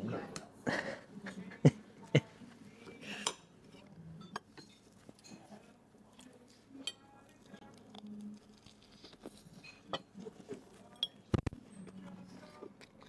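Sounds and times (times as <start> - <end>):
cutlery clinking on a plate: 4.2 - 5.6, 9.6 - 10.3, 10.9 - 11.5.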